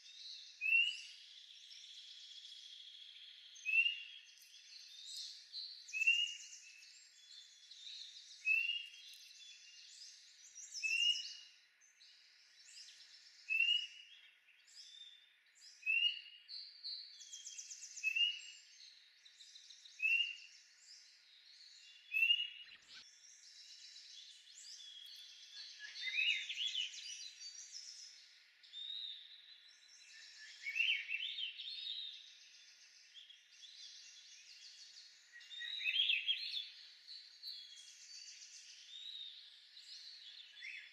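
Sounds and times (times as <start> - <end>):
elaborate birdsong phrases: 0.0 - 40.9
birds chirping: 17.0 - 40.9.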